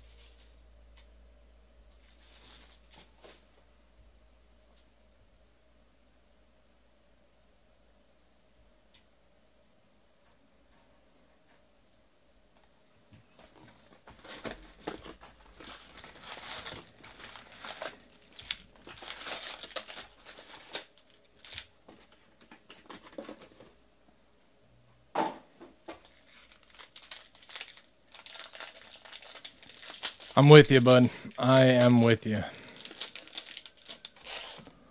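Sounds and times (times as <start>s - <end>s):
foil packs crinkling: 2.0s - 3.4s, 13.4s - 23.6s, 25.9s - 34.9s.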